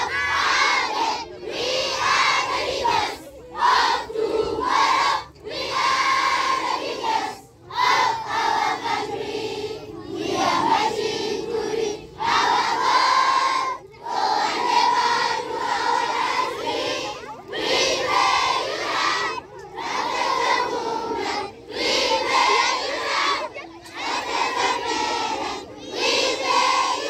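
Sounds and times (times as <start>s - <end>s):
children chanting in unison: 0.0s - 27.0s.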